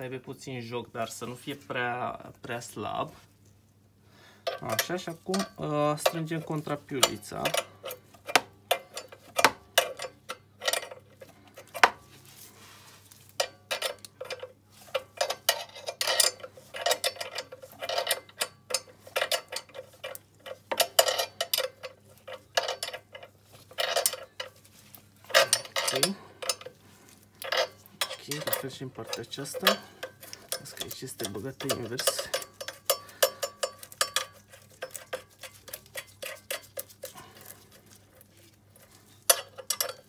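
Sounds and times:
spanner clinking against nuts: 0:04.4 - 0:11.9, 0:13.4 - 0:40.0.

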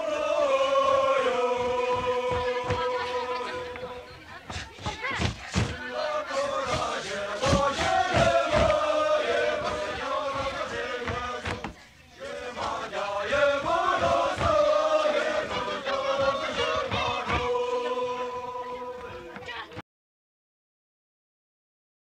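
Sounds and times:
group chanting a song: 0:00.0 - 0:19.8
stamping feet thuds: 0:01.5 - 0:05.9, 0:06.5 - 0:11.8, 0:13.5 - 0:15.2, 0:16.1 - 0:17.6.

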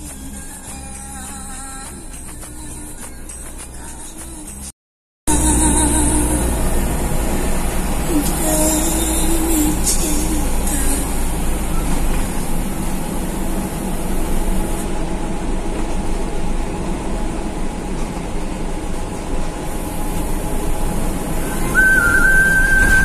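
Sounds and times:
bus engine running: 0:00.0 - 0:04.7, 0:05.3 - 0:23.0
road and body rumble: 0:05.3 - 0:23.0.

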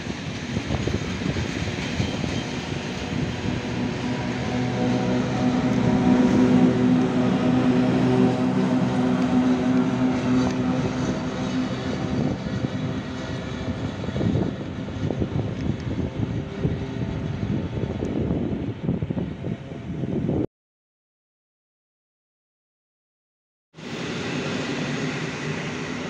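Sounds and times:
electric locomotive hum: 0:00.0 - 0:20.4, 0:23.8 - 0:26.0
wheel and rail rumble: 0:00.0 - 0:20.4.

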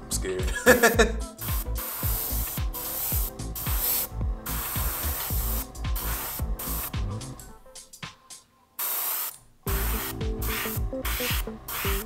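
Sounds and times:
background music with steady beat: 0:00.0 - 0:12.0
airbrush air hiss: 0:01.2 - 0:07.4, 0:08.8 - 0:12.0.

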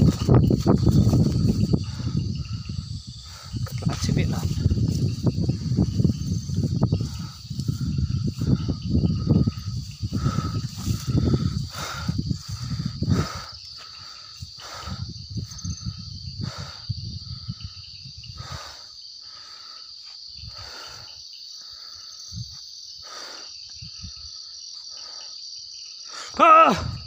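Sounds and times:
low rustling thumps: 0:00.0 - 0:18.5
insects trilling: 0:00.0 - 0:27.0
pulsing insect chirp: 0:00.0 - 0:27.0.

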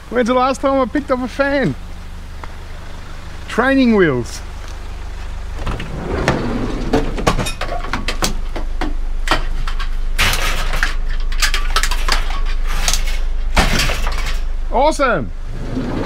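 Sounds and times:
low rumble: 0:05.1 - 0:08.4
scrap metal clanking: 0:05.6 - 0:08.1.

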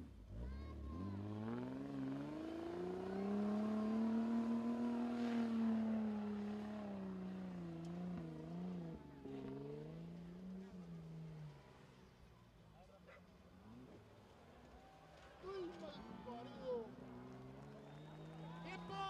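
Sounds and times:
suv engine revving: 0:00.2 - 0:11.4.

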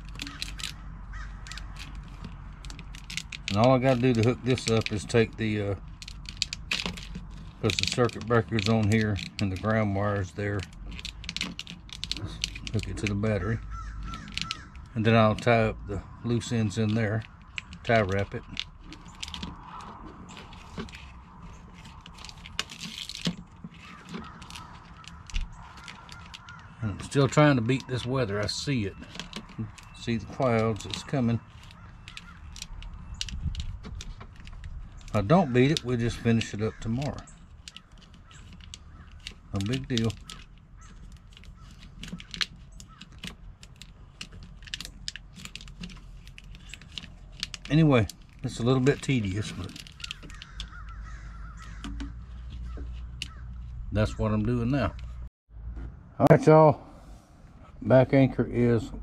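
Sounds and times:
small plastic clicks: 0:00.0 - 0:15.7, 0:16.4 - 0:53.7
plastic crinkling and rustling: 0:16.6 - 0:53.8.

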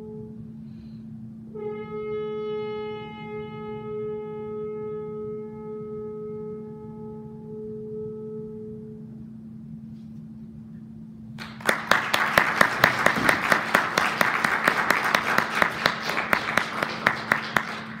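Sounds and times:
audience applauding: 0:11.4 - 0:18.0.

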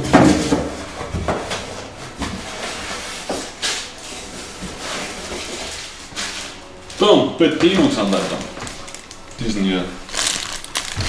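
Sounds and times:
wrapping rustling: 0:02.4 - 0:11.0.

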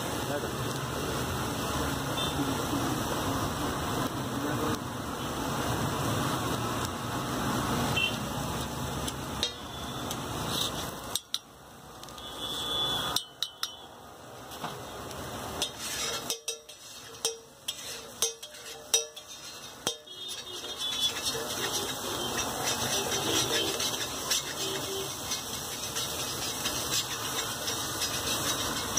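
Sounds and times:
spatula tapping metal griddle: 0:09.4 - 0:09.6, 0:11.0 - 0:11.5, 0:13.1 - 0:13.8, 0:15.6 - 0:28.9
spatula scraping griddle: 0:10.4 - 0:11.2, 0:15.6 - 0:28.9.

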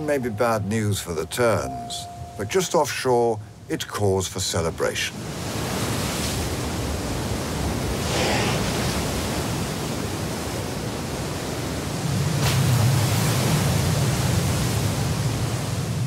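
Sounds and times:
heavy surf breaking: 0:04.6 - 0:16.0
whale crashing into waves: 0:07.6 - 0:10.3.

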